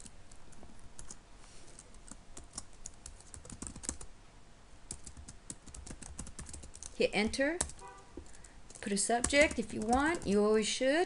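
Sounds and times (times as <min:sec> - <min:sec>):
typing on computer keyboard: 0:01.8 - 0:04.1, 0:04.9 - 0:07.0, 0:07.6 - 0:10.4.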